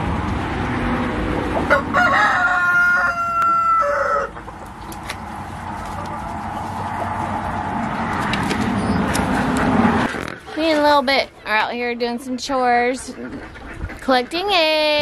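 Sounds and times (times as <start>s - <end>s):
rooster crowing: 1.7s - 4.4s.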